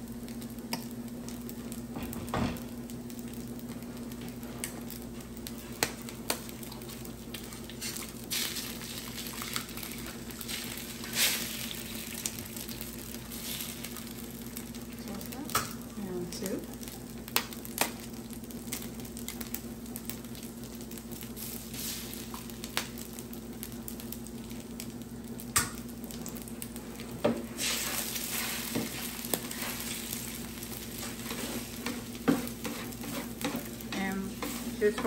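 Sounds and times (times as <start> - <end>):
food sizzling on a griddle: 0.0 - 35.0
spatula scraping and tapping metal: 31.1 - 35.0.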